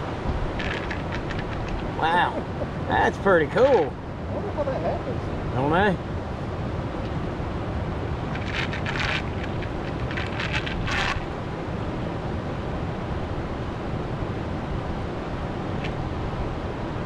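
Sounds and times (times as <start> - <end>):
river water rushing: 0.0 - 13.4
wind buffeting microphone: 0.0 - 17.0
crisp crackling clicks: 0.6 - 1.9, 8.3 - 11.2.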